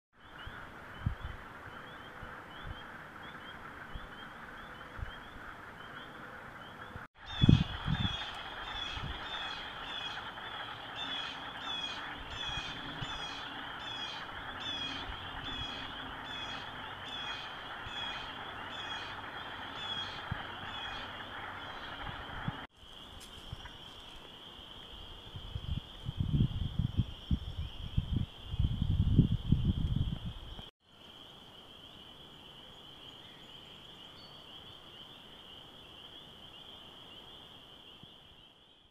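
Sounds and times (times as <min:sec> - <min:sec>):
high peeping frog chorus: 0:00.2 - 0:22.7
frogs clucking: 0:00.2 - 0:25.9.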